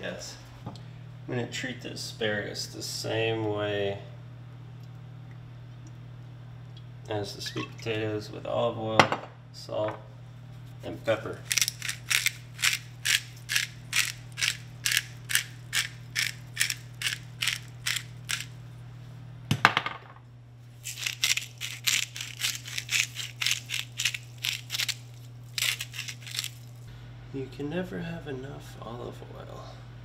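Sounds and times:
crunchy grinding strokes: 0:10.8 - 0:18.6, 0:20.8 - 0:26.9.

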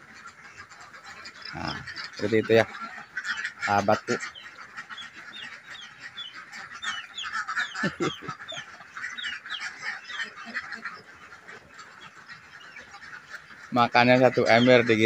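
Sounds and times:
ducks calling: 0:00.0 - 0:15.0.

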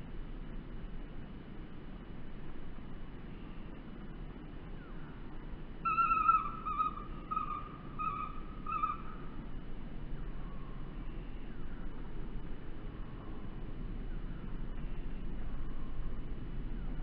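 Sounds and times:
kingfisher shrill whistled calls: 0:05.8 - 0:09.3.

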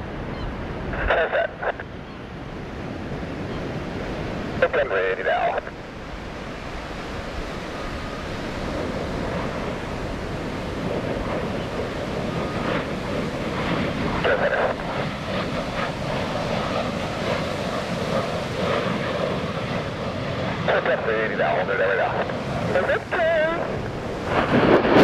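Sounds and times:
jet engines roaring: 0:00.0 - 0:25.0
wind buffeting microphone: 0:05.6 - 0:20.6, 0:21.4 - 0:25.0.

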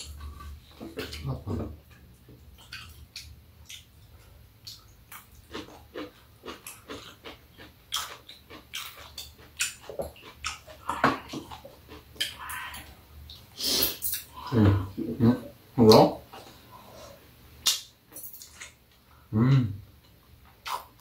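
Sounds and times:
chewing: 0:00.0 - 0:13.5.

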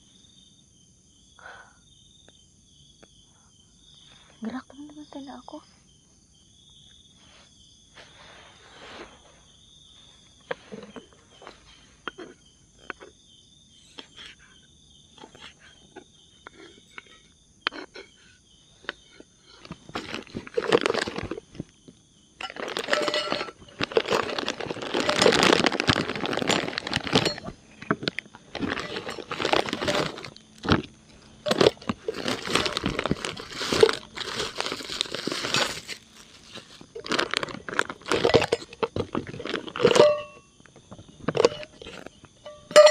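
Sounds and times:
crickets chirping: 0:00.0 - 0:42.9
bag and packets rustling: 0:19.6 - 0:21.7, 0:22.4 - 0:40.3.

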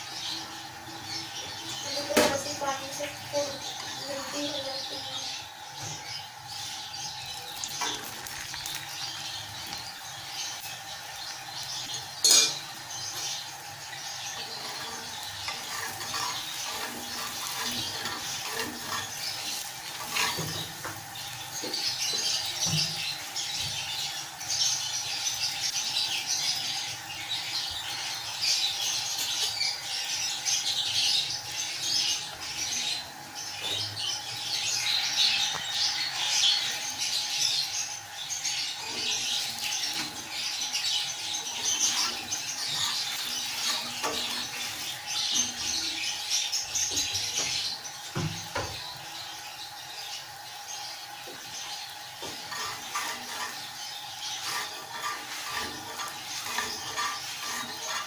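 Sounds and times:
flatbread sizzling on griddle: 0:00.0 - 0:58.0.

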